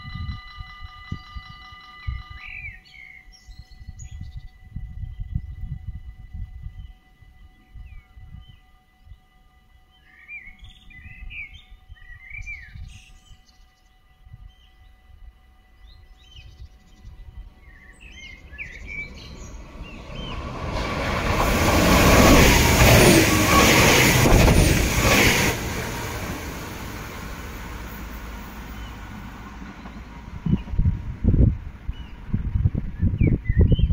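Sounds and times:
birds chirping: 0:15.8 - 0:30.8
train rushing past: 0:16.9 - 0:33.1.

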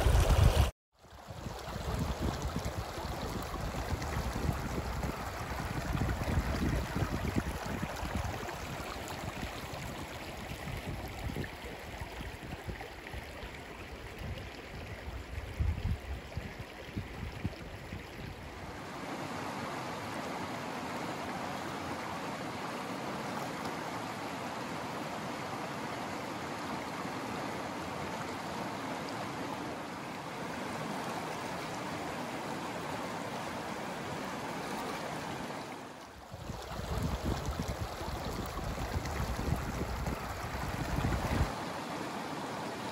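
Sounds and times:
wind rumble on microphone: 0:00.0 - 0:13.4, 0:14.0 - 0:18.6, 0:36.3 - 0:41.5
river rushing over rocks: 0:18.7 - 0:36.1, 0:36.7 - 0:42.9.

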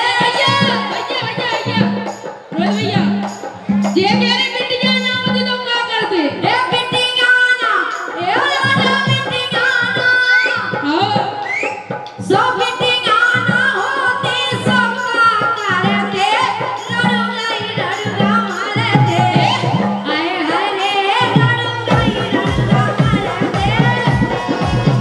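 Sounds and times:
folk drums beating: 0:00.0 - 0:25.0
person singing into microphone: 0:06.1 - 0:25.0.

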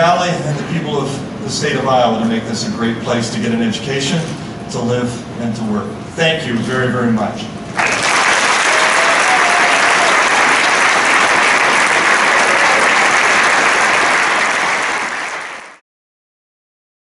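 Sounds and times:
audience applauding: 0:07.8 - 0:15.8.

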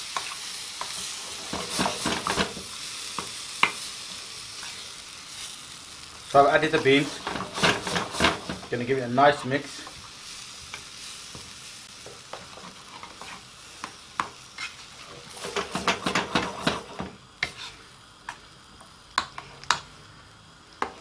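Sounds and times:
pan sizzling faintly: 0:00.0 - 0:21.0
metal spoon scraping a pan: 0:12.3 - 0:13.5, 0:14.5 - 0:18.4.

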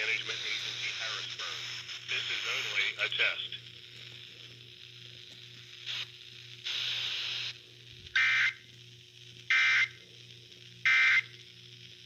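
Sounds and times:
radio data bursts: 0:00.0 - 0:04.9, 0:05.7 - 0:08.7, 0:09.3 - 0:10.1, 0:10.8 - 0:12.0
radio hiss: 0:00.0 - 0:12.0.

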